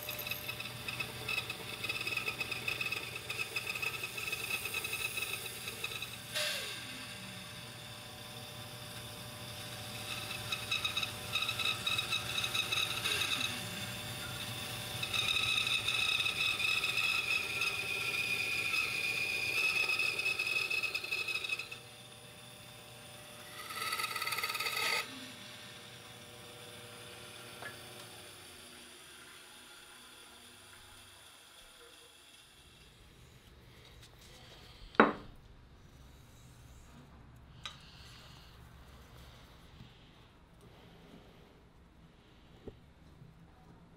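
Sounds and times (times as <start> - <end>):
power tool whine on wood: 0.0 - 33.2.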